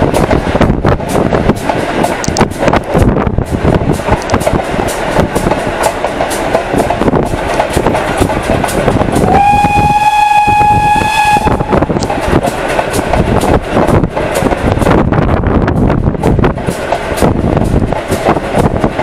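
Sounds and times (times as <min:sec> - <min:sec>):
train wheels clicking over rail joints: 0:00.0 - 0:19.0
steam locomotive whistle blast: 0:09.2 - 0:11.9.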